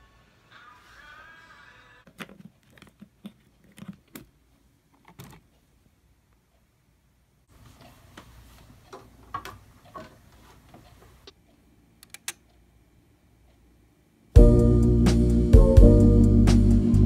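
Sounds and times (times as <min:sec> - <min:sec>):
handling noise and light clicks: 0:02.1 - 0:06.6
song with organ chord: 0:14.4 - 0:17.0.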